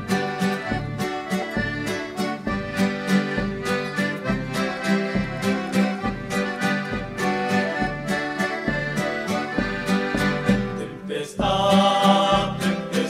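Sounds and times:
accordion melody chords: 0.0 - 13.0
strummed guitar: 0.0 - 13.0.

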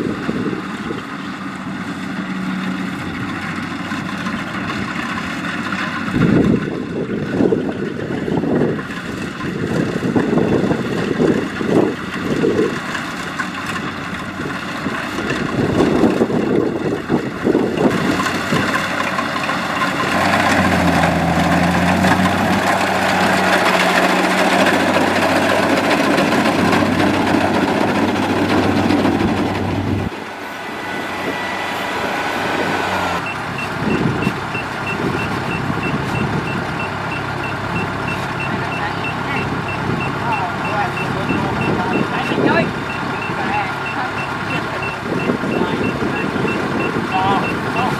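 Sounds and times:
wind gusts on microphone: 0.0 - 1.2, 6.0 - 12.8, 13.8 - 18.8, 28.5 - 36.8, 44.4 - 47.9
combine harvester droning: 0.0 - 47.9.

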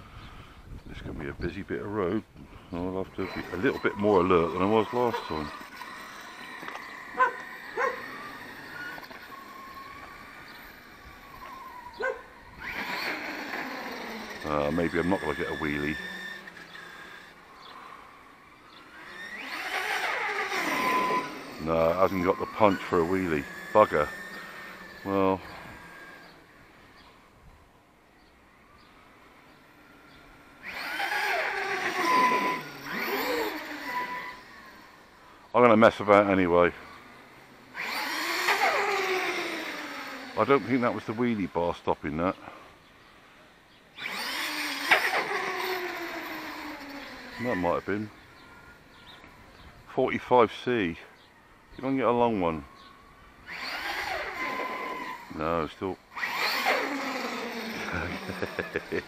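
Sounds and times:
electric motor whine: 2.5 - 27.4, 28.3 - 42.5, 43.9 - 49.8, 51.8 - 59.0
short rising and falling tones: 3.1 - 27.0, 29.2 - 35.2.

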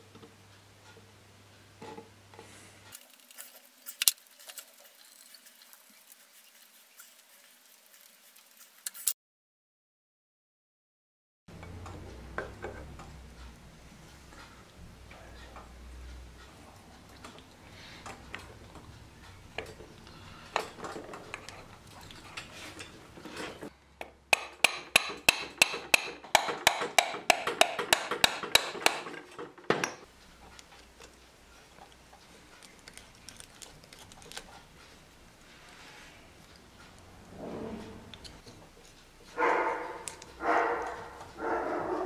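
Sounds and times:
metal parts being handled: 2.9 - 6.1, 8.8 - 9.1.

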